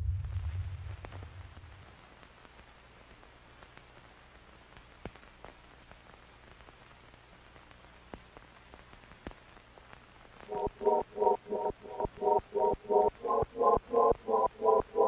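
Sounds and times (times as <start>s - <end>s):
faint steady hiss: 0.0s - 15.0s
pulsing music: 10.5s - 15.0s.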